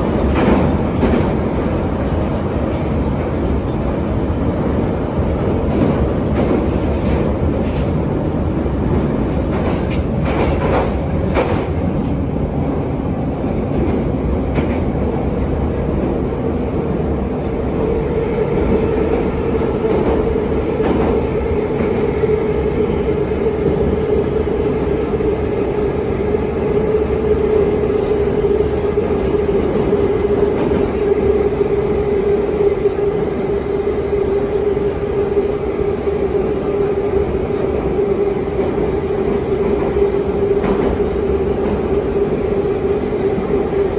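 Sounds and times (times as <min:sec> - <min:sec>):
train knocks: 0:00.0 - 0:03.9, 0:05.4 - 0:16.2, 0:17.3 - 0:26.0, 0:37.6 - 0:42.6
steady train whine: 0:00.0 - 0:43.9
train wheels rumbling on rails: 0:00.0 - 0:43.9.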